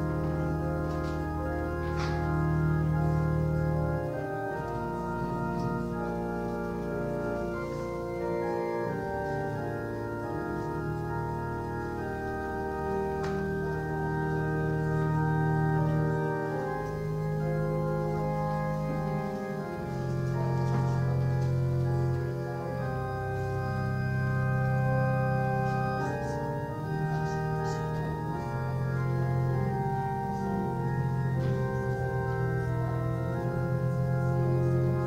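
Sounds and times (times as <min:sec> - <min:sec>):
organ playing slow chords: 0:00.0 - 0:35.0.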